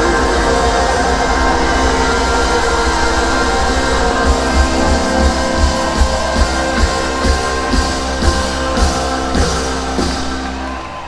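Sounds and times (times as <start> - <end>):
electric guitar chords: 0.0 - 11.0
drum kit with kick drum: 3.8 - 11.0.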